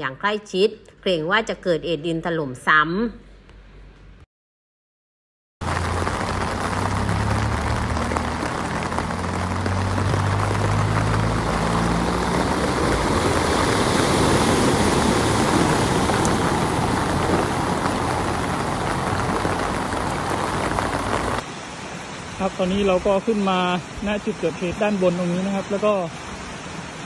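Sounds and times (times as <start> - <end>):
low engine hum: 5.6 - 21.4
car driving through floodwater: 5.6 - 21.9
heavy rain hiss: 5.6 - 27.0.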